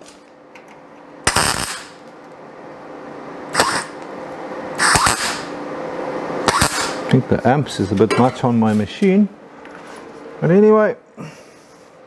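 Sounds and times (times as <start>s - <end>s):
steady low hum: 0.0s - 12.0s
welding arc bursts: 1.3s - 2.0s, 3.5s - 4.0s, 4.8s - 5.6s, 6.4s - 7.0s.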